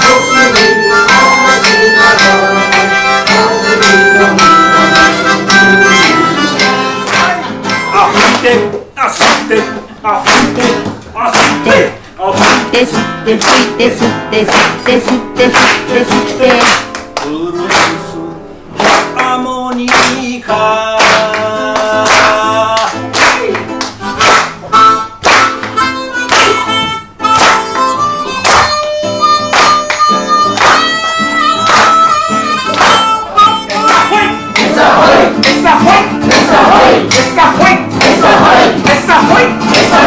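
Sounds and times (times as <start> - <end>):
harmonica melody: 0.0 - 8.7, 24.0 - 40.0
acoustic guitar: 0.0 - 40.0.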